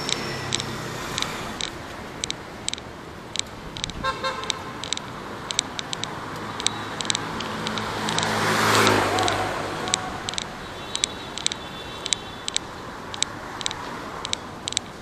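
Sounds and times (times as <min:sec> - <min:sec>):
vehicle horn toot: 0:04.0 - 0:04.7, 0:10.0 - 0:12.5.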